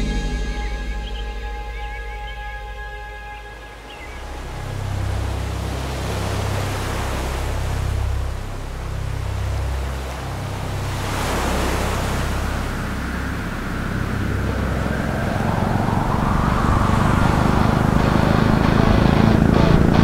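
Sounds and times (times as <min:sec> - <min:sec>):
surf: 0:00.0 - 0:20.0
wind: 0:00.0 - 0:20.0
motorcycle engine approaching: 0:12.8 - 0:20.0.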